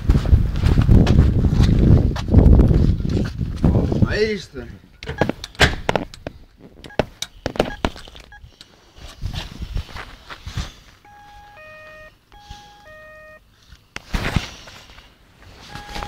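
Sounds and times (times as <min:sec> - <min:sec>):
electronic two-note beeping: 0:11.1 - 0:13.4, 0:15.7 - 0:16.0
rustling: 0:13.5 - 0:16.0.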